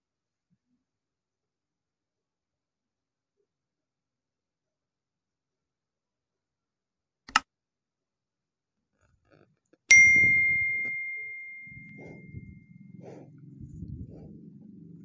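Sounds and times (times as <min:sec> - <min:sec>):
high bell ding: 0:09.9 - 0:12.8
faint low rumble: 0:09.9 - 0:15.0.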